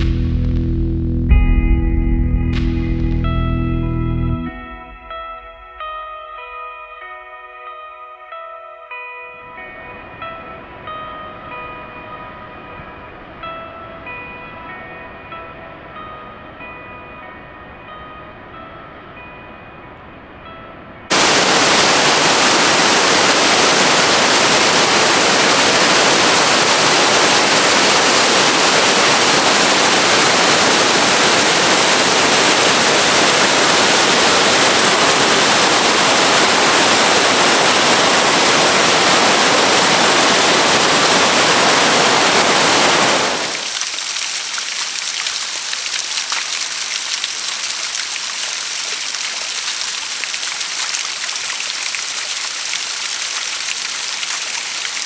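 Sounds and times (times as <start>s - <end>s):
small cascade splashing over rock: 21.1s - 55.0s
waterfall pouring onto rocks: 21.1s - 55.0s.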